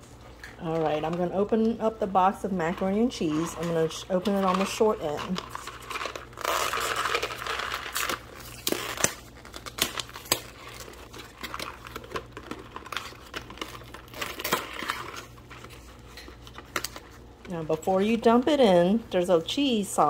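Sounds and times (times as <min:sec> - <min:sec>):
cardboard ripping and crinkling: 0:02.8 - 0:17.3.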